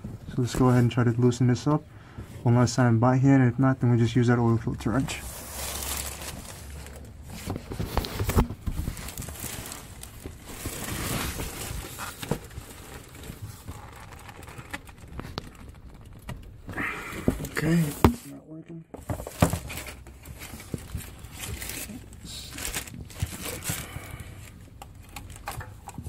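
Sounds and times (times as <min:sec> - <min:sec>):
glove rustling: 0:05.1 - 0:14.6.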